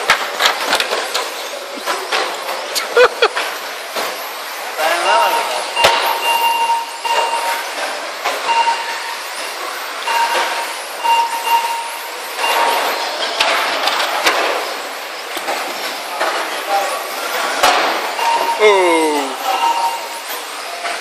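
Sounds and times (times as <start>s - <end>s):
electronic beep: 5.2s - 7.6s, 8.4s - 9.2s, 10.0s - 13.1s, 18.2s - 20.2s.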